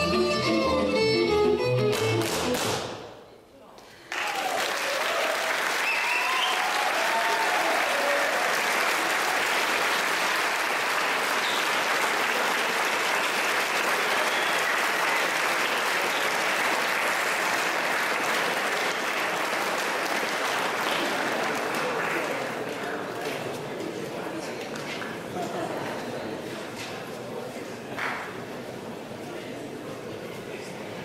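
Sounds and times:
audience applauding: 4.0s - 23.4s.

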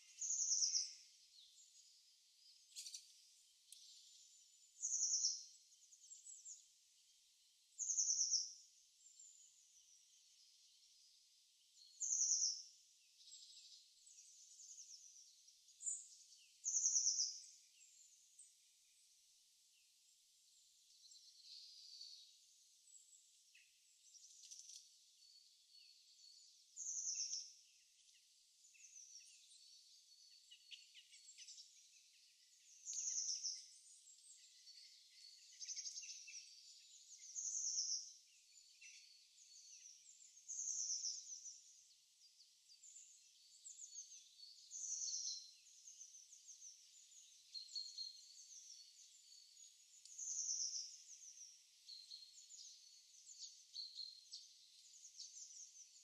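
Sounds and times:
soft bird chirps and twitters: 0.0s - 56.0s.

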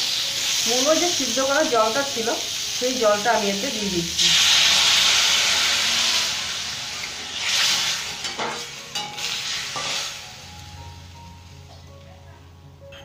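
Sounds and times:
liquid sizzling in hot oil: 0.0s - 11.7s
metal spatula scraping pan: 4.3s - 10.2s.

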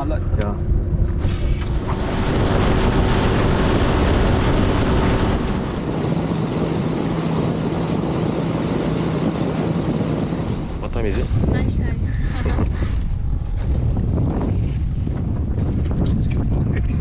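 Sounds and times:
rushing wind: 0.0s - 17.0s
outboard motor running: 0.1s - 11.4s
water rushing past hull: 1.2s - 11.5s.

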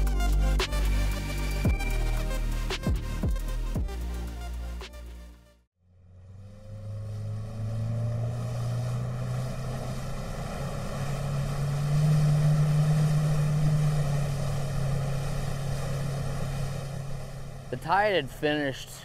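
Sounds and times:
outboard motor accelerating: 0.0s - 4.9s, 5.8s - 19.0s
water hissing along hull: 8.3s - 17.7s.

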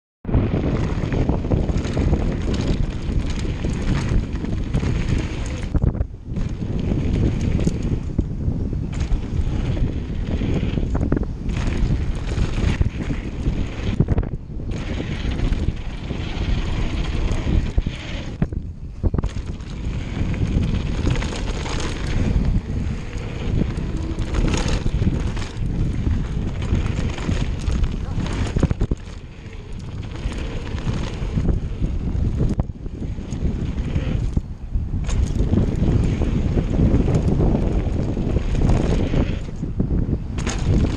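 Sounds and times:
wind buffeting microphone: 0.2s - 40.9s
bike tyres rumbling on gravel: 0.3s - 40.9s
bike rattling knocks: 14.7s - 32.6s, 35.0s - 39.7s, 40.3s - 40.9s.

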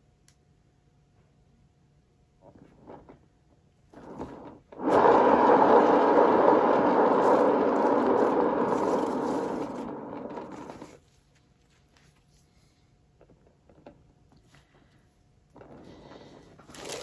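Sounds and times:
turntable spinning: 3.9s - 11.0s.

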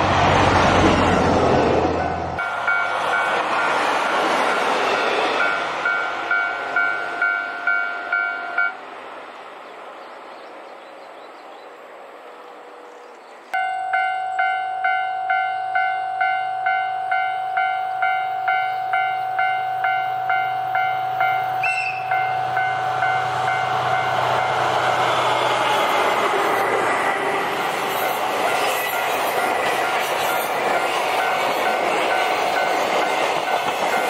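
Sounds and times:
diesel locomotive engine hum: 0.0s - 34.0s
railroad crossing bell clanging: 1.9s - 8.8s, 13.6s - 25.1s, 27.9s - 34.0s
short high horn toot: 21.6s - 22.3s.

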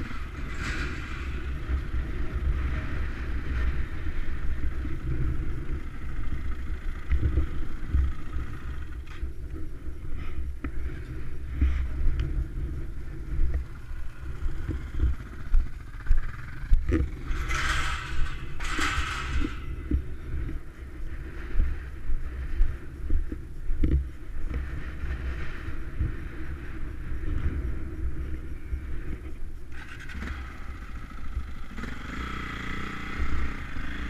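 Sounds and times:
motorcycle engine idling: 0.0s - 34.0s
sharp clicks and knocks: 14.5s - 20.6s.

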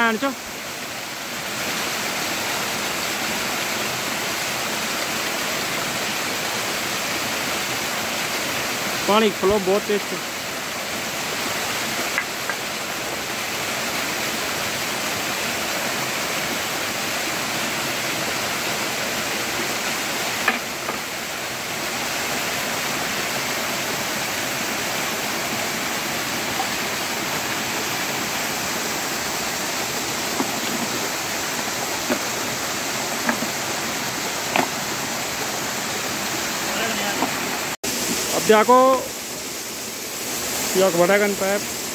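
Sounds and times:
stream rushing over rocks: 0.0s - 41.9s
sharp knocks: 20.4s - 21.0s, 34.5s - 34.8s.

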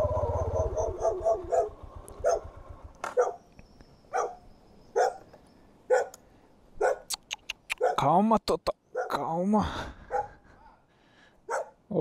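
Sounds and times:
motorcycle engine idling: 0.0s - 3.4s
dog barking: 0.2s - 2.5s, 3.1s - 3.4s, 4.1s - 4.4s, 5.0s - 5.2s, 5.9s - 6.2s, 6.8s - 7.1s, 7.8s - 8.1s, 8.9s - 9.2s, 10.1s - 10.4s, 11.5s - 11.8s.

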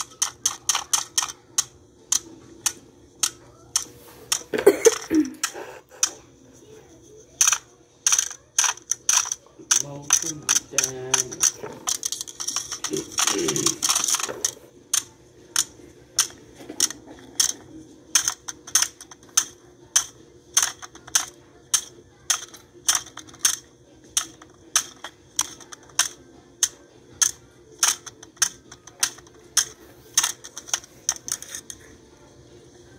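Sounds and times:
regular mechanical clicks: 0.0s - 4.5s.

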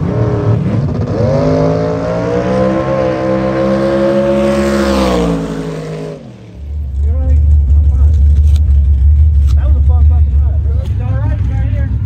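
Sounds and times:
race car engine at full throttle: 0.0s - 12.0s
loud low rumble: 4.3s - 12.0s.

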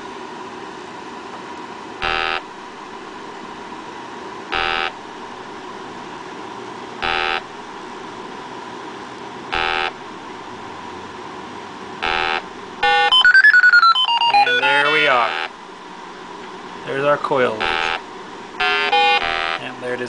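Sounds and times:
leak detector beeping: 2.0s - 2.5s, 4.5s - 5.0s, 7.0s - 7.5s, 9.5s - 10.0s, 12.0s - 15.5s, 17.6s - 18.0s, 18.6s - 19.7s.

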